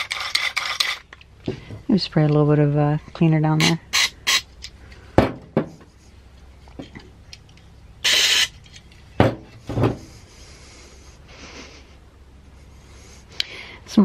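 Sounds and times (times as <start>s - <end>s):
knocks on metal housing: 5.2s - 5.7s, 9.2s - 10.0s.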